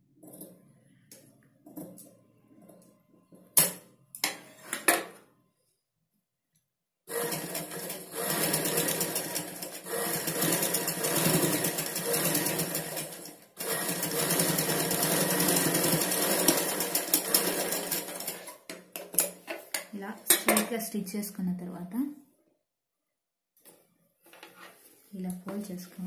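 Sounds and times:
sewing machine stitching: 0:07.1 - 0:18.7.

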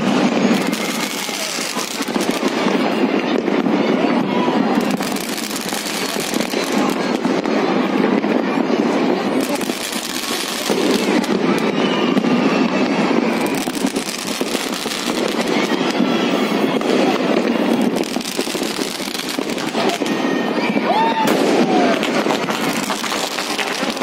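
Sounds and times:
fireworks crackling and banging: 0:00.0 - 0:24.0.

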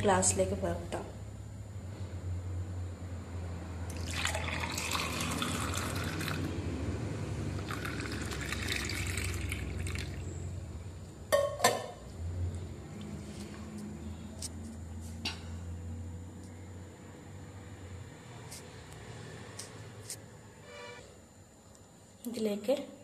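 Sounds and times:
juice pouring into glass: 0:03.9 - 0:06.6, 0:07.6 - 0:10.3.

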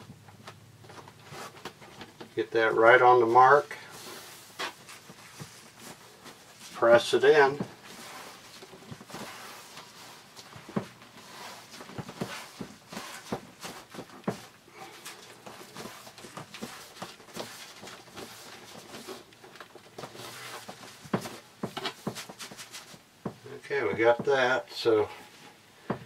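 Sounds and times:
hands tapping and rubbing on wall: 0:04.0 - 0:24.5.

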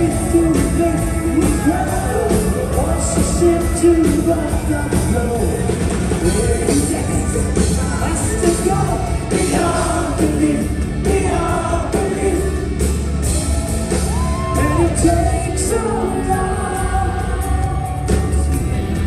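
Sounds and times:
man singing: 0:00.0 - 0:12.8, 0:14.4 - 0:18.7
rock band playing: 0:00.0 - 0:19.0.

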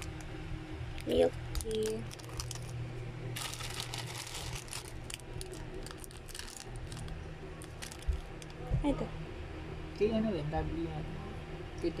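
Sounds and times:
plastic packaging crinkling: 0:00.0 - 0:00.3, 0:00.9 - 0:08.7
low steady hum: 0:00.0 - 0:12.0.

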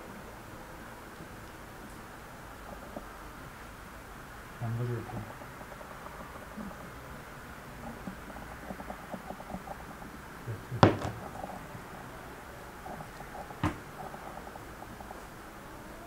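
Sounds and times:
knocks on wooden worktop: 0:10.8 - 0:11.2, 0:13.6 - 0:13.8.

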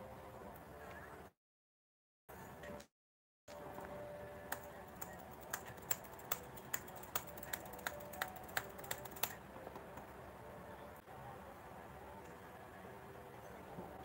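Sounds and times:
keyboard typing: 0:04.5 - 0:10.0.

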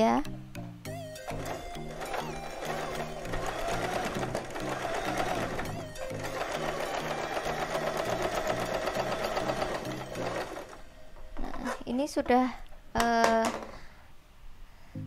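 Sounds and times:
sewing machine stitching: 0:01.2 - 0:10.8.

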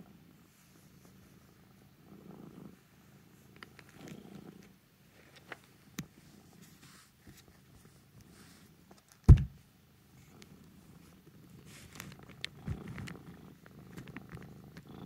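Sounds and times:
cat purring: 0:00.0 - 0:08.9, 0:09.9 - 0:15.0
loud low thump: 0:09.3 - 0:09.6.

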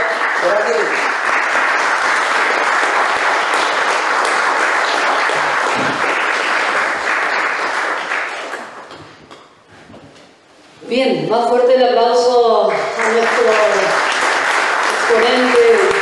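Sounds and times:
audience applauding: 0:00.0 - 0:09.2, 0:12.7 - 0:16.0.

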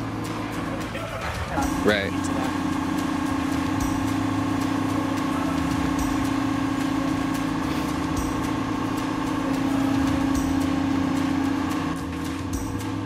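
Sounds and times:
diesel engine running steadily: 0:00.0 - 0:13.0.

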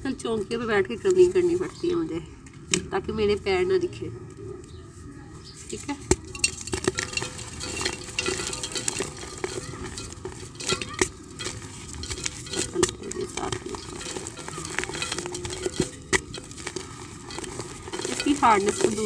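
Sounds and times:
powder dropping into pot: 0:06.0 - 0:19.0.

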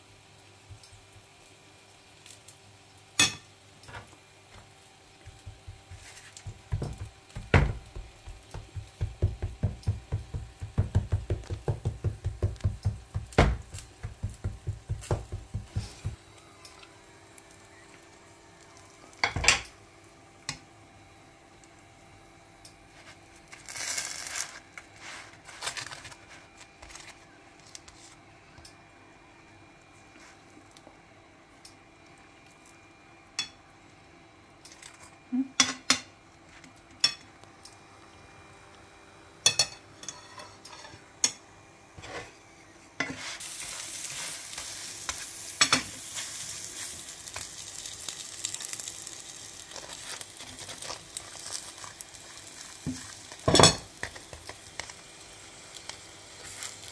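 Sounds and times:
food sizzling in butter: 0:00.0 - 0:20.1, 0:22.9 - 0:26.3, 0:43.0 - 0:56.9.

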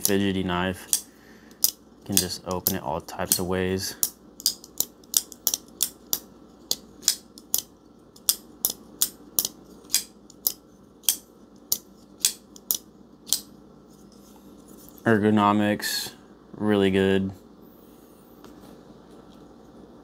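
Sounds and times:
folding knife clicking open and shut: 0:04.4 - 0:13.5.

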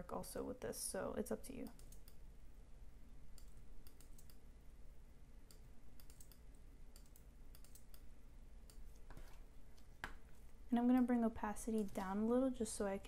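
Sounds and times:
low room hum: 0:00.0 - 0:13.0
keyboard and mouse clicking: 0:01.7 - 0:02.2, 0:03.3 - 0:04.4, 0:05.4 - 0:09.0.

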